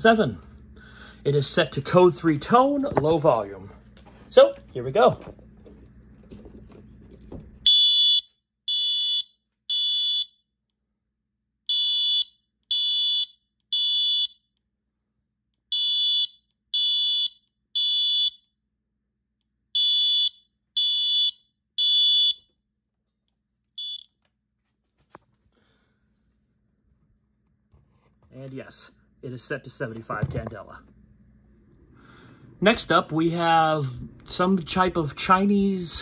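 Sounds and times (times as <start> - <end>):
fire alarm high-pitched beeps: 7.6 - 10.4, 11.7 - 14.5, 15.7 - 18.6, 19.8 - 22.5, 23.8 - 24.2.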